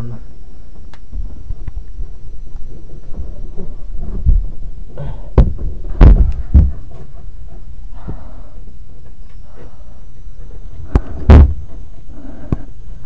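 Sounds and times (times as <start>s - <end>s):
heavy thumps: 0.7s - 8.6s, 10.6s - 12.8s
microphone handling rumble: 0.8s - 8.2s, 10.8s - 11.9s.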